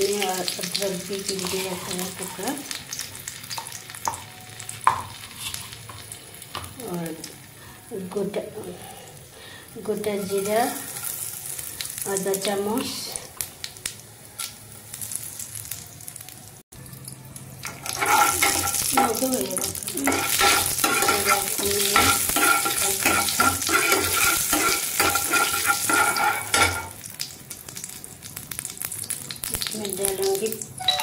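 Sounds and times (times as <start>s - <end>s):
spices sizzling in oil: 0.0s - 31.0s
metal ladle scraping pan: 1.3s - 2.6s, 17.6s - 19.2s, 20.0s - 27.0s.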